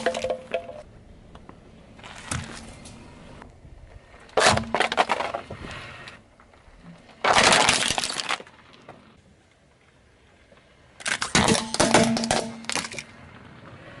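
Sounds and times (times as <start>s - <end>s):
car tyre crushing objects: 0.0s - 0.9s, 1.9s - 3.1s, 4.2s - 9.2s, 11.0s - 13.5s.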